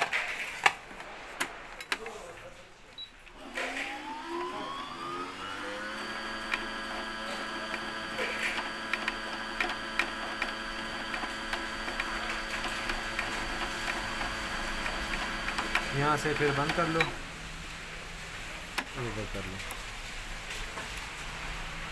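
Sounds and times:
sewing machine motor whine: 3.4 - 17.2.

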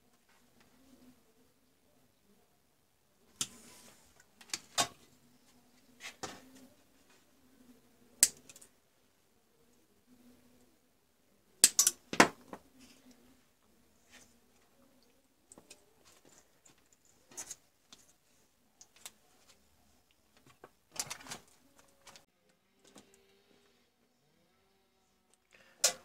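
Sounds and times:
wire cutters snipping wires: 11.6 - 12.0.

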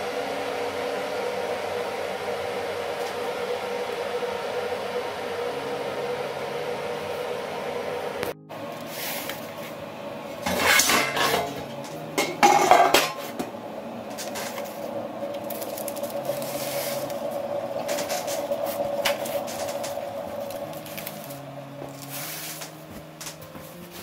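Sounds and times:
metal tray clattering on stone: 10.4 - 13.4.

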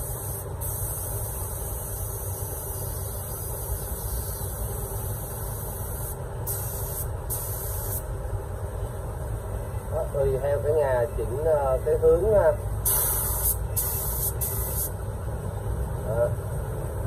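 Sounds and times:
spray gun hissing: 0.0 - 8.0, 12.8 - 14.9.

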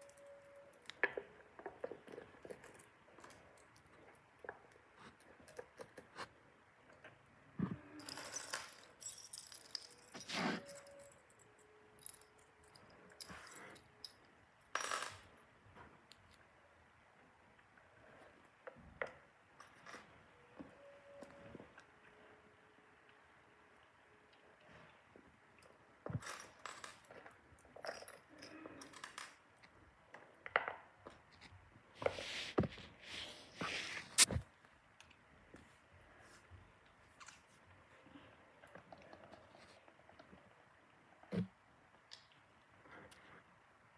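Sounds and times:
jewelry clicking and jangling: 7.9 - 15.4.

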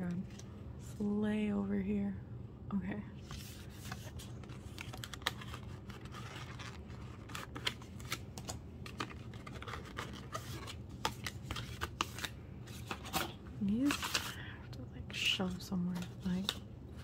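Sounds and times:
packaging rustling and crinkling: 3.3 - 14.4.

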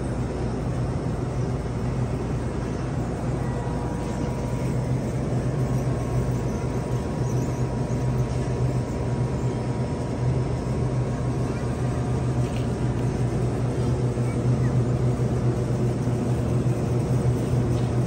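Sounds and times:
low hum of indoor machinery: 0.0 - 18.0
faint steady high tone: 2.8 - 8.2.

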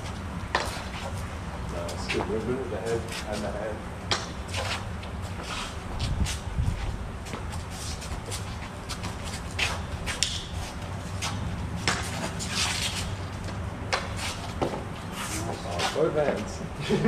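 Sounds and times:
steady low rumble: 0.0 - 13.9
footwork scuffs: 0.0 - 16.5.

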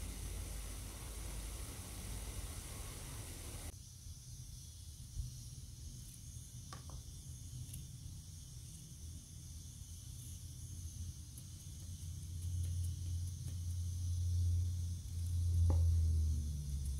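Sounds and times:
low rumble: 0.0 - 3.7
faint steady hiss: 0.0 - 16.9.

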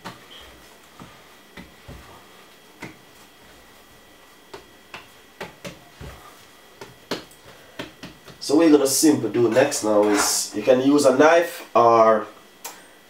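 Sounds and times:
hands patting dough: 0.0 - 8.5.

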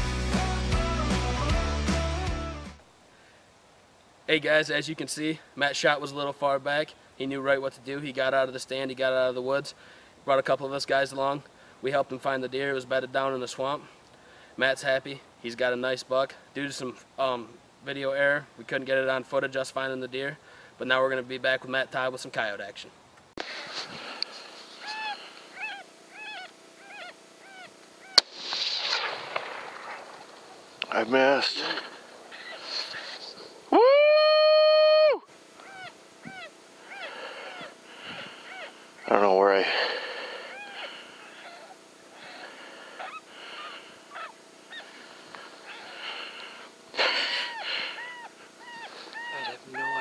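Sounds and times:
animal honking yipping calls: 24.8 - 28.2, 35.6 - 39.2, 40.5 - 42.4, 43.0 - 45.0, 47.0 - 50.0
coyote yelps: 24.8 - 28.2, 32.3 - 33.1, 35.0 - 50.0
rifle shot: 28.2 - 30.8
loud sudden burst: 28.2 - 32.1.

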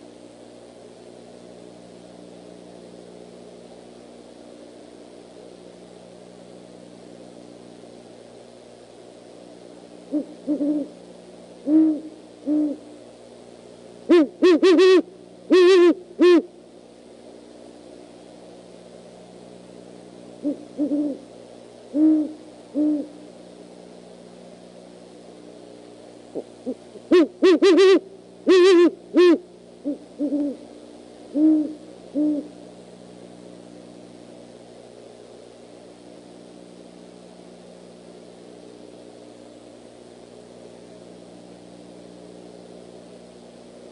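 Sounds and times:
owls hooting: 10.1 - 11.0, 11.6 - 12.9, 14.1 - 16.5, 20.4 - 21.3, 21.9 - 23.2, 26.3 - 30.6, 31.3 - 32.6.

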